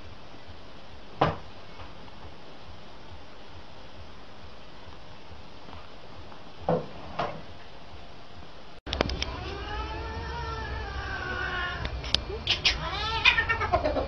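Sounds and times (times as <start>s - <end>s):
cat yowling: 9.3s - 14.0s.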